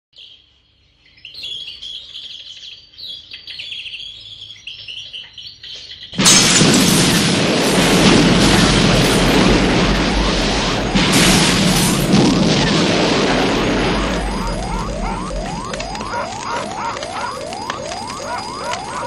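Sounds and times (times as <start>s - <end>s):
small birds chirping: 0.2s - 6.2s
loud explosion: 6.2s - 19.0s
rush of burning fire: 6.2s - 19.0s.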